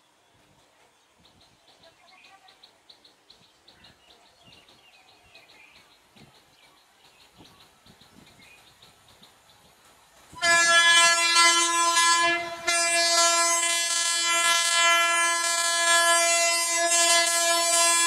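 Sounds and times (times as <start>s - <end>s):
locomotive horn blast: 10.4s - 18.0s.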